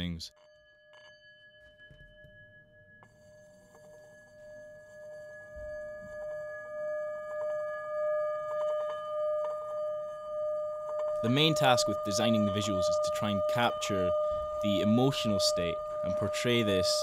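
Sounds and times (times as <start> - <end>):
electronic drone: 3.6 - 17.0.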